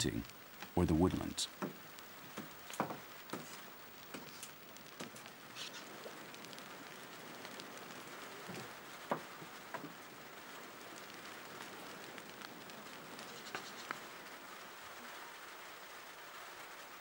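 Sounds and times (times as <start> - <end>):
wood fire crackling and popping: 0.0 - 17.0
fish sizzling on a grill: 1.6 - 16.6.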